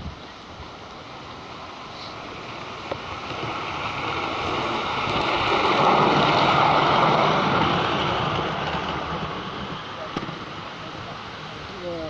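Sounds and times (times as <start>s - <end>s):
model train rolling on track: 0.0s - 12.0s.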